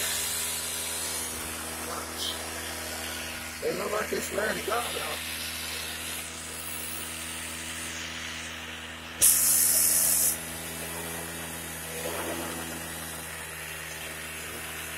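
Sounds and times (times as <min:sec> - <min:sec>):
loud hiss: 0:00.0 - 0:10.6
scooter engine idling: 0:00.0 - 0:14.9.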